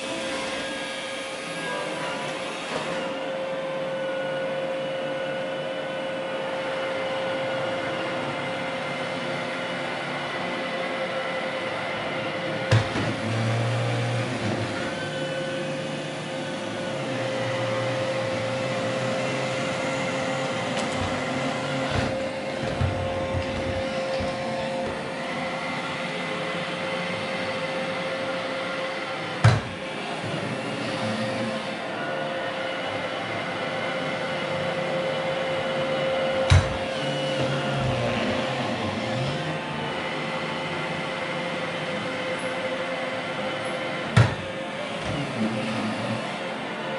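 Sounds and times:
robot vacuum running: 11.6 - 42.5, 43.3 - 46.9.

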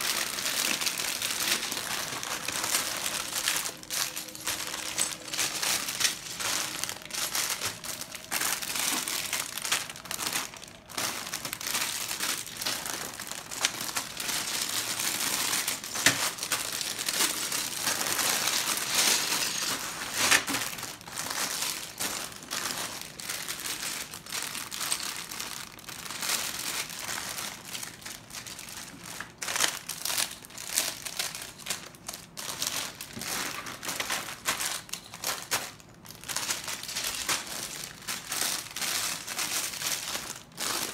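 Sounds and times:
plastic bags crinkling: 0.0 - 40.9.

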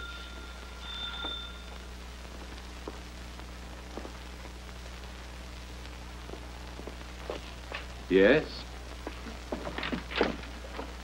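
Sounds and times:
doorbell ringing: 0.0 - 1.8
soundtrack hiss and hum: 0.0 - 11.0.

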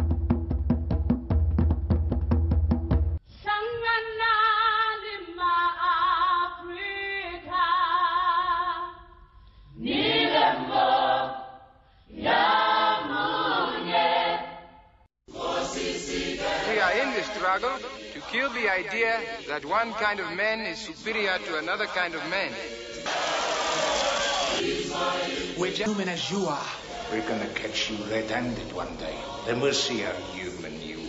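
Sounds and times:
choir singing a cappella: 9.7 - 31.0.

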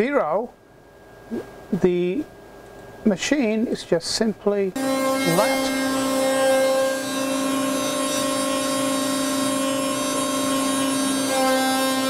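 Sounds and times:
router spindle high whine: 4.8 - 12.0.

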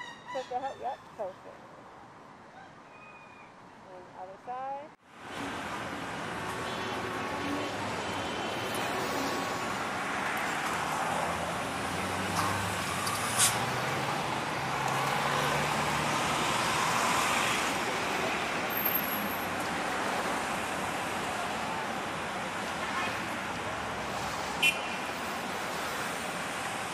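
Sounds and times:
road traffic noise: 0.0 - 26.9
vehicle passing: 5.3 - 21.4.

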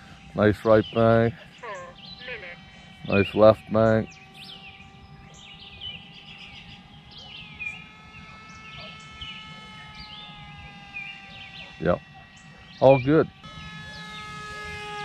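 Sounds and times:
birds chirping and calling: 0.0 - 15.0
electric motor and propeller whine: 0.0 - 15.0.

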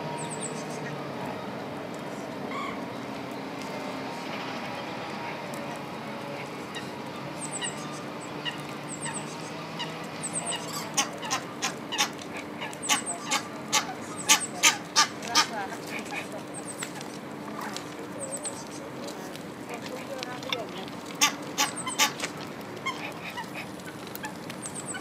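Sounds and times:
geese honking: 8.4 - 16.3, 21.1 - 25.0.

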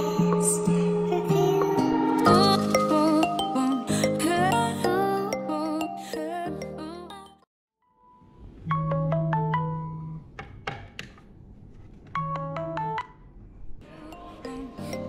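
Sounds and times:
phone ringing marimba melody: 1.4 - 6.9, 8.7 - 10.2.

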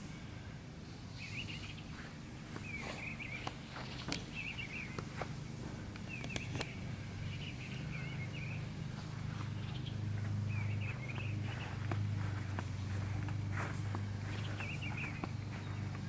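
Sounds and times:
songbirds chirping: 0.0 - 16.0
steady low hum: 0.0 - 16.0
faint footstep-like clicks: 2.0 - 6.8, 8.9 - 16.0.

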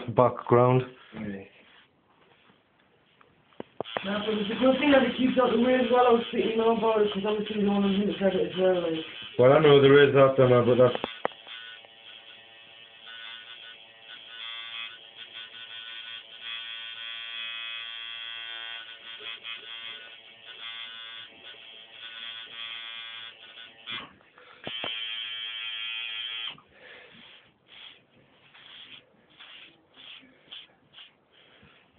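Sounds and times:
soft rustling: 1.0 - 3.8
tattoo machine buzzing: 3.8 - 31.9.

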